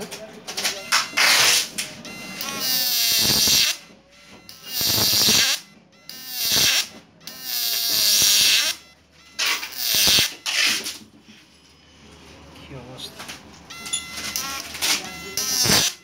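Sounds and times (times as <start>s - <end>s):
buzzing whine: 0.8s - 3.9s, 4.5s - 5.6s, 13.8s - 16.0s
crackling electric sparks: 2.9s - 3.8s, 4.7s - 5.6s, 6.4s - 6.9s, 9.8s - 10.3s, 15.5s - 16.0s.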